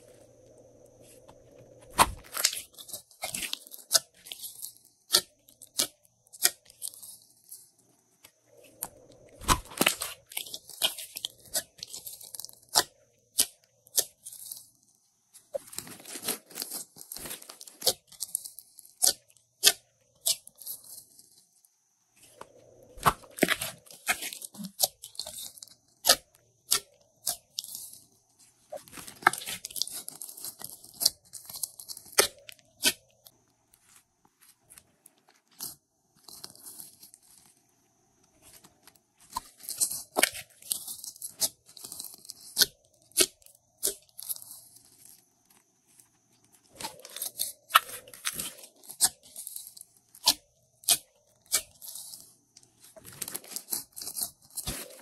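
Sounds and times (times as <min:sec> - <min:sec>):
slime crackling and popping: 0:01.9 - 0:07.2.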